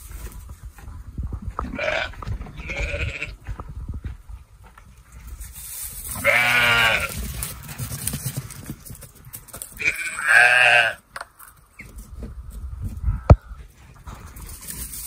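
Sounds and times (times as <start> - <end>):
sheep bleating: 1.8 - 3.4, 6.2 - 7.2, 9.8 - 11.0.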